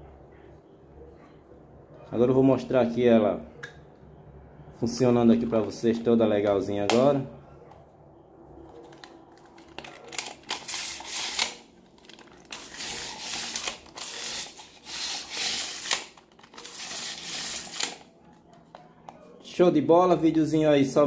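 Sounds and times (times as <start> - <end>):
tape measure clicks: 10.1 - 11.6, 12.5 - 18.0
tape measure blade scraping rattle: 10.2 - 11.6, 12.4 - 18.1.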